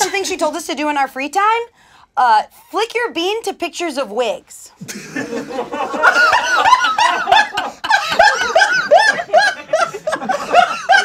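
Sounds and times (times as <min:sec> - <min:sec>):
group of people laughing: 0:04.8 - 0:11.0.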